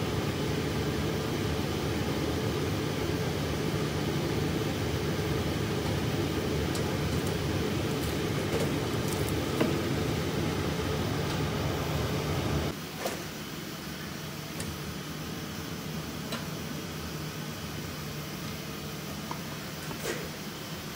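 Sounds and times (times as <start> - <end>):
blower fan hum: 0.0 - 20.9.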